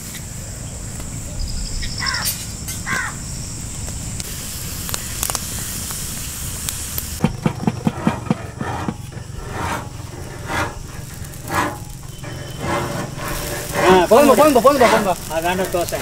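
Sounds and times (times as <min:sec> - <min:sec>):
wood fire hissing and crackling: 0:00.0 - 0:16.0
knocks: 0:07.2 - 0:09.8.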